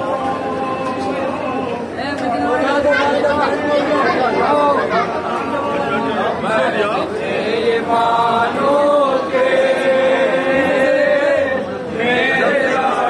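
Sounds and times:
men chanting together: 5.4s - 13.0s.

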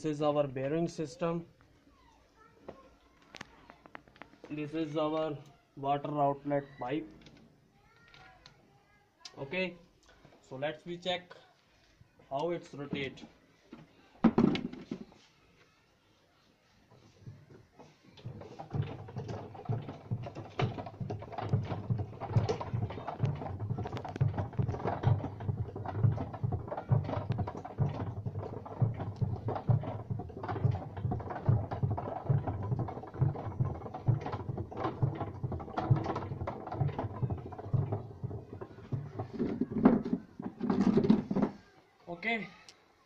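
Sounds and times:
chain and metal linkage clatter: 18.2s - 41.4s
low knocks: 18.2s - 41.5s.

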